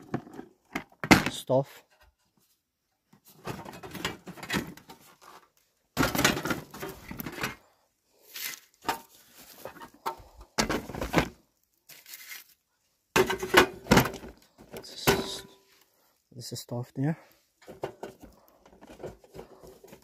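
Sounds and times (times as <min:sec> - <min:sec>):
metal stove knocking and rattling: 0:17.6 - 0:19.4.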